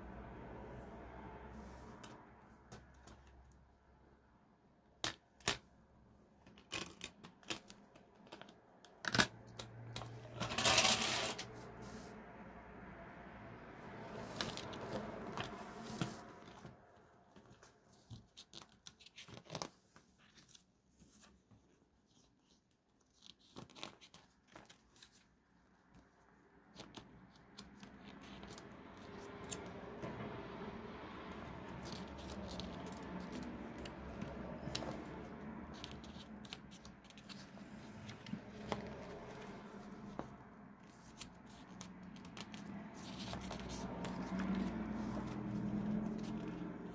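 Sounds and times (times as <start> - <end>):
paper rustling and sliding: 10.1 - 12.1, 14.1 - 22.6, 31.6 - 46.9.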